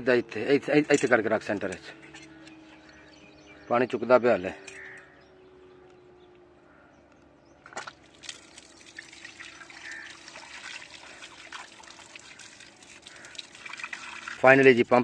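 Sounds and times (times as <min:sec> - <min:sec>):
water splashing over hands: 0:07.6 - 0:15.0
water pouring from pipe: 0:07.8 - 0:15.0.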